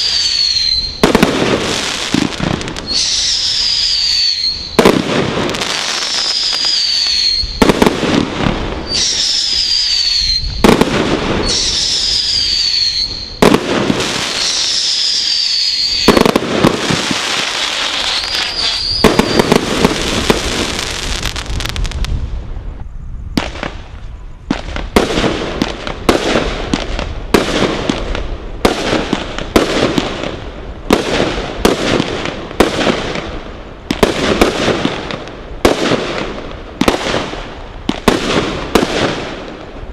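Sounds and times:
sharp firework reports: 0.0s - 22.3s
dense firework crackling: 0.0s - 39.9s
firework whistles and bangs: 0.0s - 39.9s.

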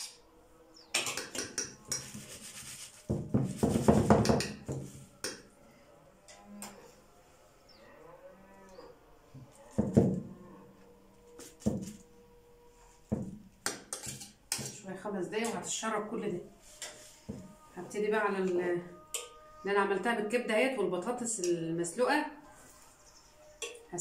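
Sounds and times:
spoon and knife clinking on metal tray: 13.8s - 14.8s.

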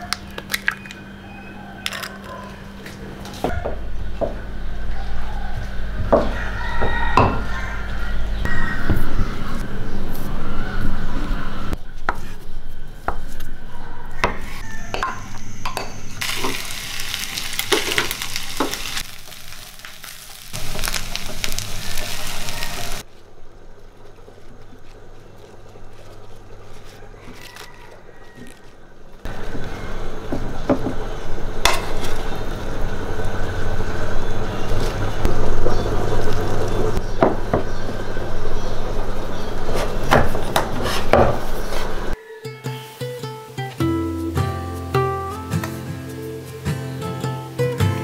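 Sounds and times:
food sizzling in frying pan: 16.2s - 23.1s, 42.6s - 43.9s.

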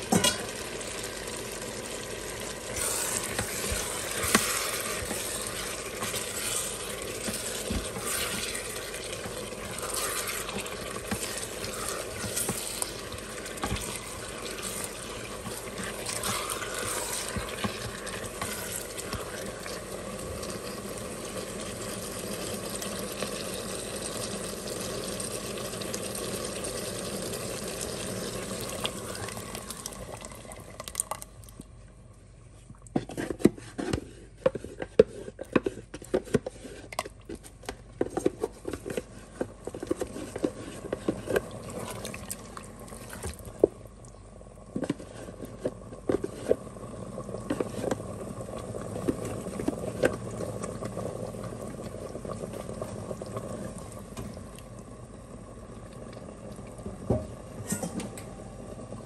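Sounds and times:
sauce bubbling: 0.5s - 32.0s, 40.1s - 57.6s.

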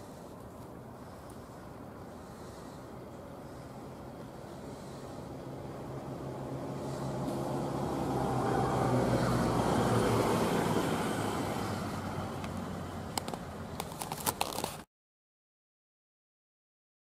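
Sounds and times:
vehicle passing: 2.2s - 13.8s.

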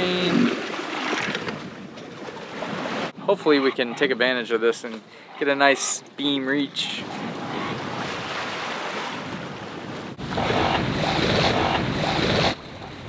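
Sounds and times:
sea water rushing past boat: 7.8s - 13.0s.

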